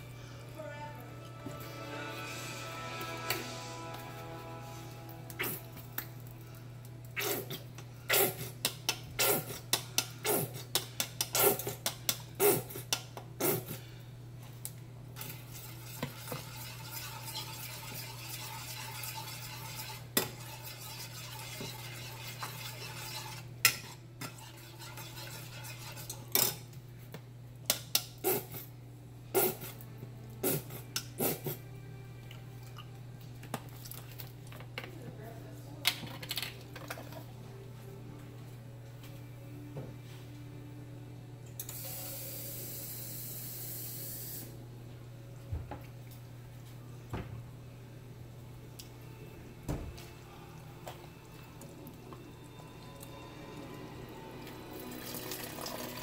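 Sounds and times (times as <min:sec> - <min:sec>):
steady low hum: 0:00.0 - 0:35.8
metal spoon stirring in saucepan: 0:15.2 - 0:26.7.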